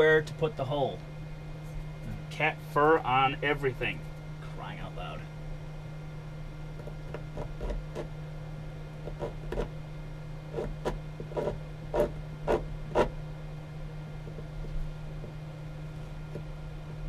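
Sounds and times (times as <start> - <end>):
steady low hum: 0.0 - 17.0
scratching and tapping on wood: 6.8 - 8.1, 9.0 - 9.7, 10.6 - 13.1, 14.2 - 15.4, 16.3 - 17.0.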